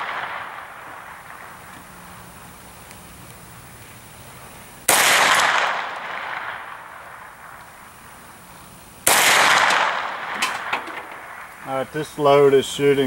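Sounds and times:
gunshots with reverberating tail: 0.0 - 1.8, 4.8 - 7.9, 9.0 - 11.6.

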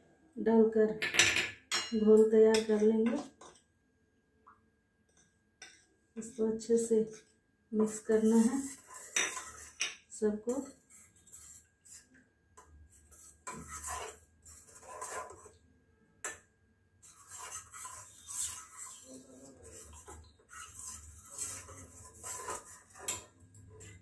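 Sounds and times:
spoon scraping metal bowl: 7.0 - 15.6, 17.0 - 24.0.

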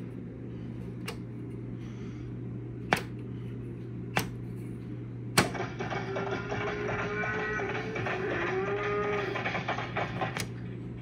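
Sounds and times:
radio speaker hum and hiss: 3.2 - 11.0.

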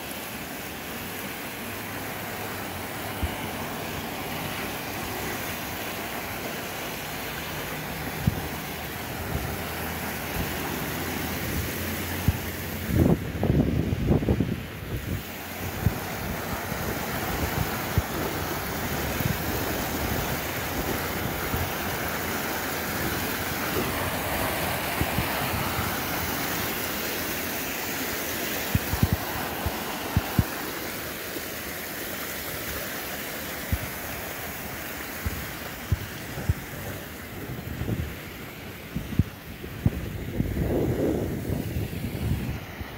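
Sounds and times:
water splashing in fountain pool: 0.0 - 42.9
wind buffeting microphone: 8.0 - 10.6, 11.4 - 26.7, 28.7 - 30.6, 35.2 - 42.9.

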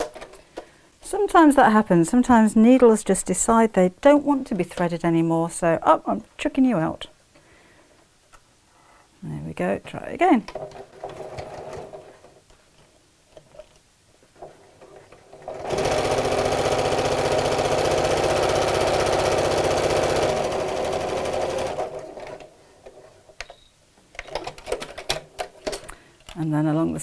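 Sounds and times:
sewing machine stitching: 10.5 - 12.2, 14.8 - 22.5.

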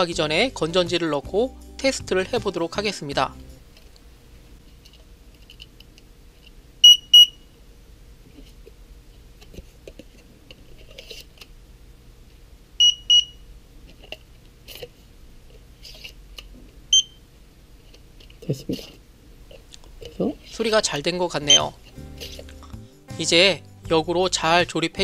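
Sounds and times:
high-pitched double beep: 21.5 - 21.7.

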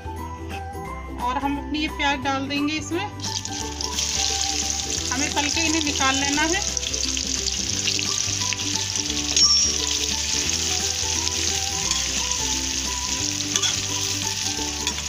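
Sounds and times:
onions sizzling in hot oil: 3.2 - 15.0.

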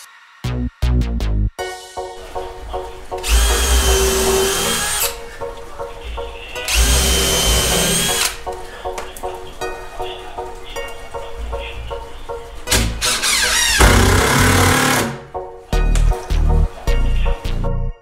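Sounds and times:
background music: 0.0 - 18.0
cordless drill drilling wood: 3.2 - 5.2, 6.7 - 8.4, 13.0 - 15.2.

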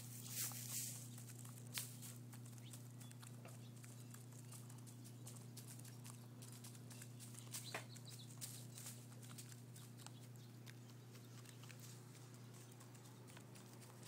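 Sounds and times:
hens' beaks tapping on grain: 0.0 - 14.0.

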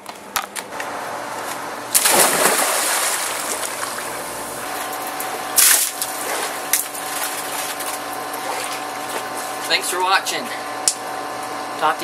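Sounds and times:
steady hum: 0.0 - 12.0
splash into pool: 1.9 - 4.1
water sloshing: 2.0 - 9.6.

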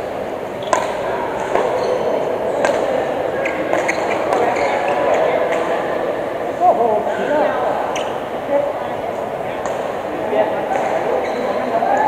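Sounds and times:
rackets striking shuttlecock: 0.6 - 1.8, 2.6 - 5.7, 10.7 - 11.0.

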